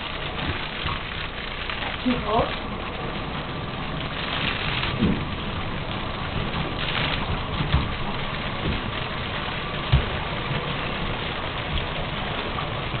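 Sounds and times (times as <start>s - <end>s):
faucet water running into tub: 0.0s - 13.0s
soft low thumps: 5.0s - 12.0s.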